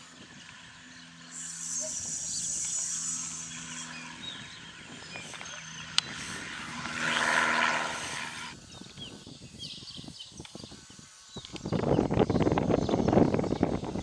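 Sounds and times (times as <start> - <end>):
propeller plane engine drone: 0.0 - 14.0.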